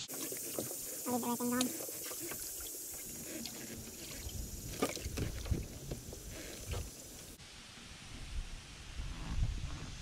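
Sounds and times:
knocks and thumps aboard boat: 4.0 - 6.8.

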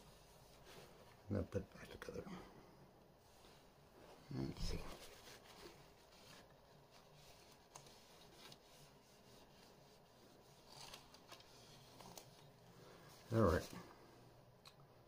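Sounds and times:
soft tissue rustle: 0.0 - 14.6.

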